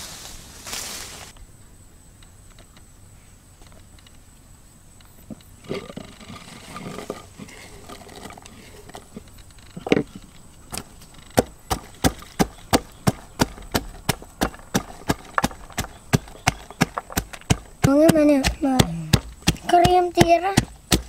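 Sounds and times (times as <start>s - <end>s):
wooden pestle pounding in mortar: 11.4s - 21.0s.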